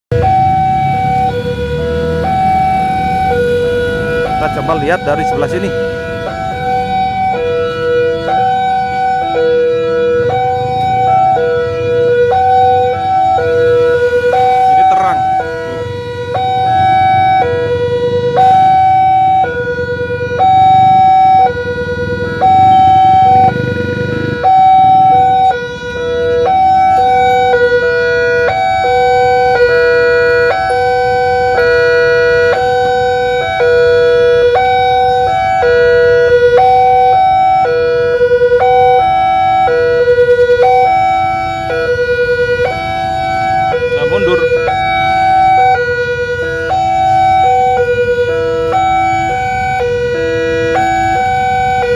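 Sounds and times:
level crossing two-tone alarm: 0.1s - 51.9s.

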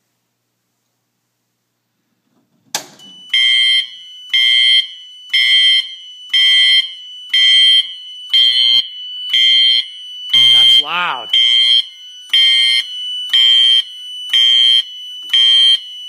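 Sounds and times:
fire alarm pull station clack: 2.7s - 10.6s
fire alarm horn pulsing: 3.1s - 16.0s.

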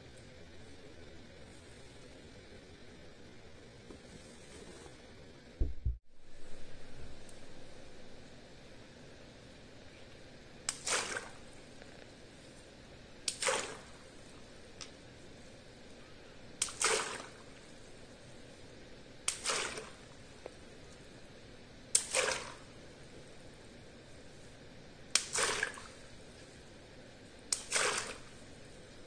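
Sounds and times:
water splashing: 10.7s - 11.6s, 13.3s - 14.5s, 16.6s - 17.9s, 19.3s - 20.4s, 22.0s - 22.8s, 25.2s - 26.2s, 27.5s - 28.7s
water balloon popping: 27.5s - 28.2s.

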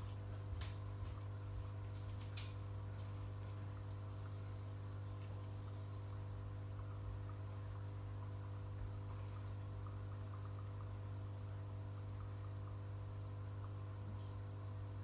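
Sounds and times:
bubbles ticking: 3.3s - 14.9s.

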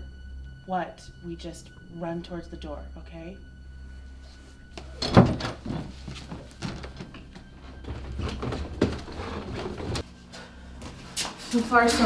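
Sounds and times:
low steady hum: 0.0s - 12.0s
quick footsteps: 4.8s - 10.0s.

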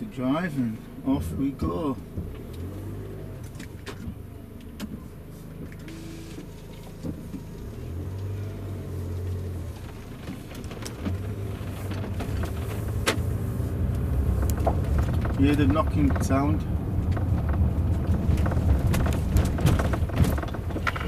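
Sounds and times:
car engine and road rumble: 0.0s - 21.0s
trim knocking and clicking: 9.3s - 21.0s.

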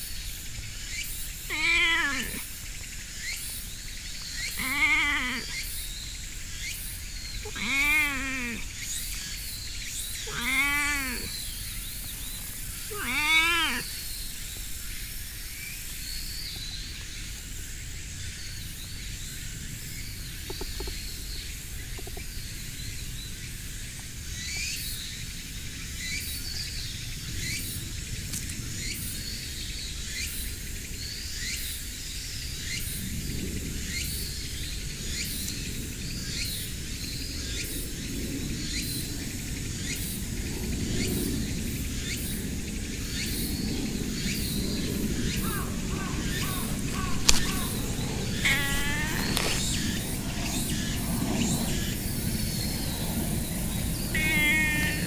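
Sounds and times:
faint bird chirps: 0.9s - 14.6s, 43.1s - 50.8s, 51.4s - 55.0s
cat meowing: 1.5s - 2.5s, 4.5s - 5.6s, 7.4s - 8.7s, 10.2s - 11.4s, 12.8s - 13.9s, 45.6s - 50.0s, 54.1s - 55.0s.

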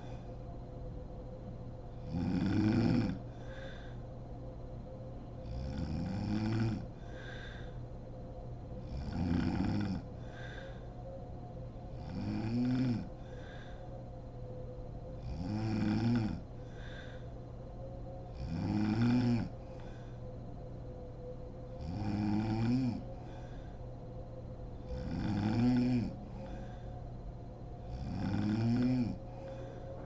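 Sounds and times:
soft breath: 0.0s - 0.6s, 3.0s - 5.7s, 6.8s - 9.0s, 10.0s - 12.1s, 13.0s - 15.3s, 16.4s - 18.4s, 19.4s - 21.8s, 23.0s - 25.1s, 26.1s - 28.1s, 29.1s - 30.0s
woman snoring: 2.0s - 3.8s, 5.4s - 7.7s, 8.8s - 10.9s, 11.9s - 13.6s, 15.2s - 17.2s, 18.3s - 20.0s, 21.8s - 23.6s, 24.8s - 26.8s, 27.8s - 29.6s.

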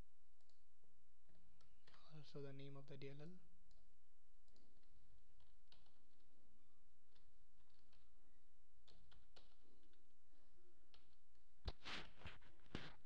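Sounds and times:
keyboard keystrokes: 5.4s - 6.2s.

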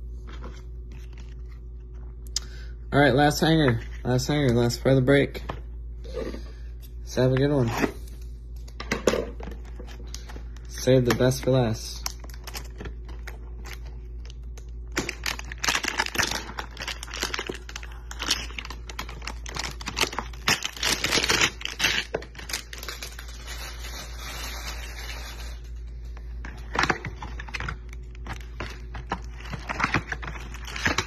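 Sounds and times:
plastic wrapping crinkling and tearing: 0.2s - 2.2s, 9.5s - 25.8s, 26.5s - 31.0s.

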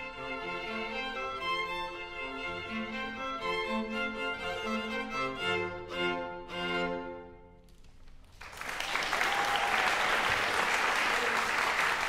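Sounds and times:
audience applause: 8.3s - 12.0s.

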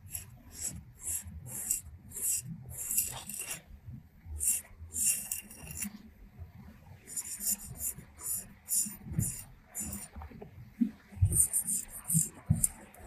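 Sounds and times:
straight razor scraping stubble: 0.0s - 3.6s, 4.4s - 5.9s, 7.1s - 10.1s, 11.3s - 12.8s.

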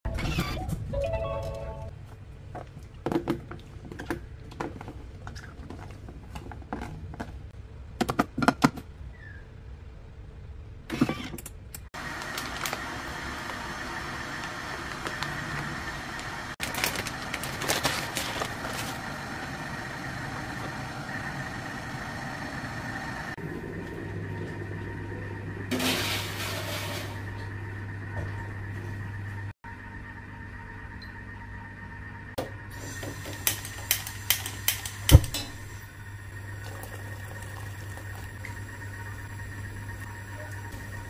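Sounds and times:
appliance hum: 0.1s - 41.0s.

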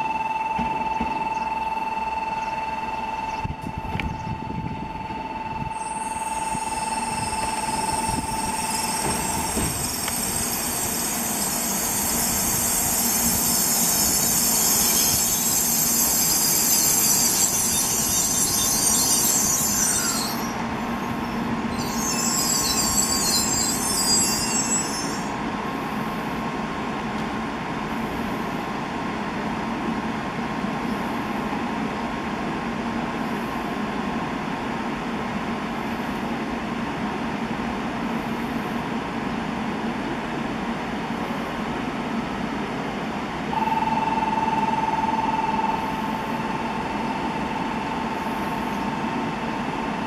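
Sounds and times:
train brakes squealing: 0.0s - 25.5s, 43.5s - 50.0s
train rolling rumble: 2.3s - 50.0s.

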